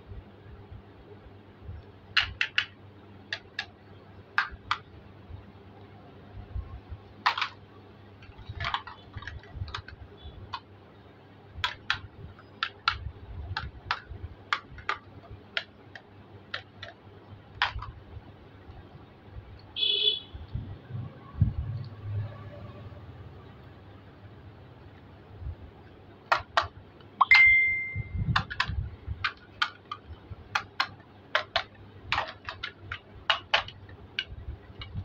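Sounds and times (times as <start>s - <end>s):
plastic toy pieces clicking: 2.2s - 3.7s, 4.4s - 4.8s, 7.2s - 7.6s, 8.2s - 10.7s, 11.6s - 18.0s, 26.3s - 26.8s, 28.3s - 35.0s.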